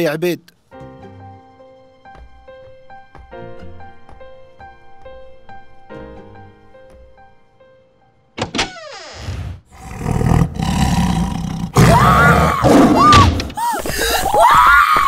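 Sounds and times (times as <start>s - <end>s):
cartoon leopard roaring: 9.2s - 13.2s
boy screaming: 11.8s - 15.0s.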